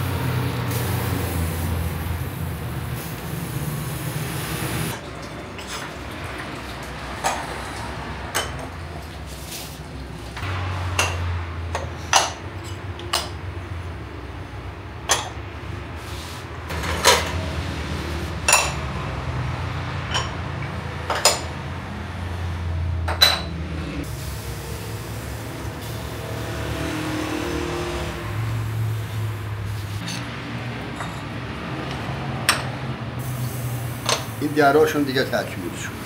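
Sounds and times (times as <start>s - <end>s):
clay lids clinking on ceramic pots: 18.5s - 18.8s.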